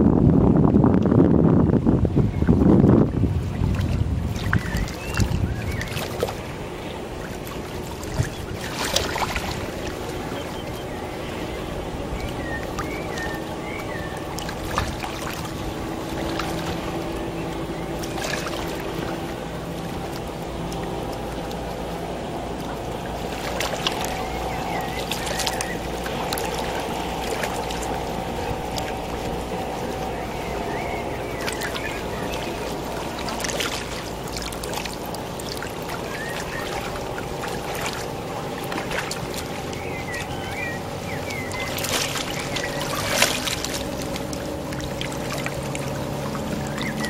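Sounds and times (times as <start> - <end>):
motorboat engine droning: 0.0 - 47.0
water noise: 0.0 - 47.0
wind: 0.0 - 47.0
high curling chirps: 21.8 - 34.4.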